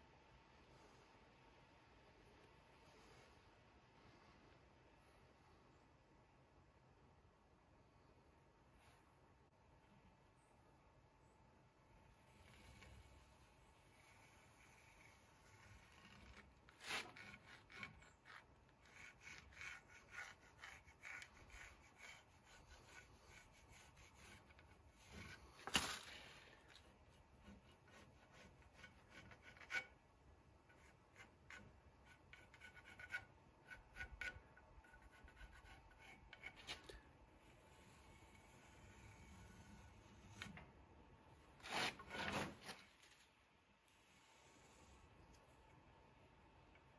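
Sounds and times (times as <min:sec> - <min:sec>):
hand and tools scraping wood: 0:12.2 - 0:30.0, 0:30.6 - 0:40.8, 0:41.5 - 0:45.4.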